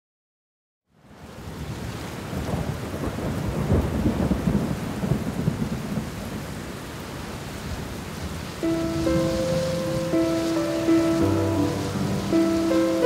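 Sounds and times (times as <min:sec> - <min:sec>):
rain falling: 0:01.0 - 0:13.0
low rolling thunder: 0:02.3 - 0:06.4, 0:08.3 - 0:13.0
soft melody: 0:08.6 - 0:13.0.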